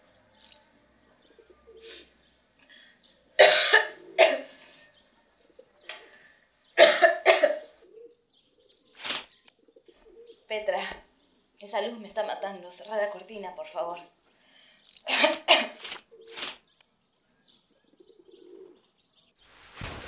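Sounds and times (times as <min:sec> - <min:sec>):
woman coughing: 0:03.4 - 0:04.6, 0:06.8 - 0:07.6, 0:15.1 - 0:15.8.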